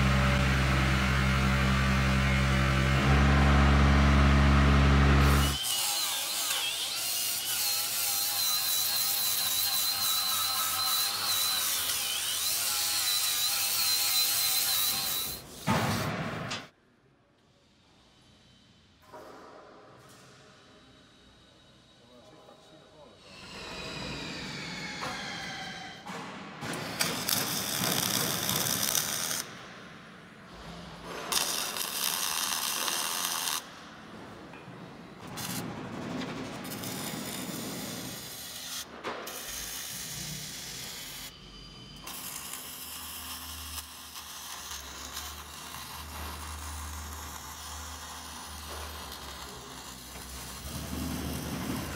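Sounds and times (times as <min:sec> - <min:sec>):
power grinder whining on steel: 0:00.0 - 0:15.4
arc welding crackling: 0:27.0 - 0:29.6, 0:31.0 - 0:33.8, 0:36.6 - 0:41.3, 0:42.1 - 0:51.9.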